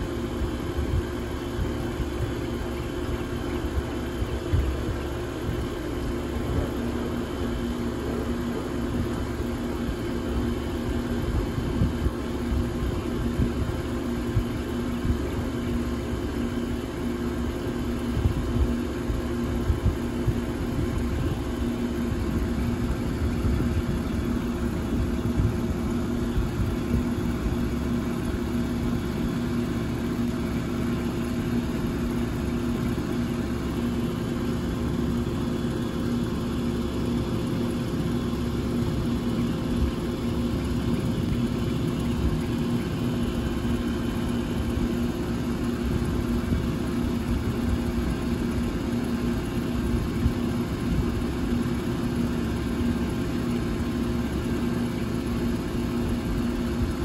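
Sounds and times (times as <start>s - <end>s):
fan rushing: 17.4s - 51.7s.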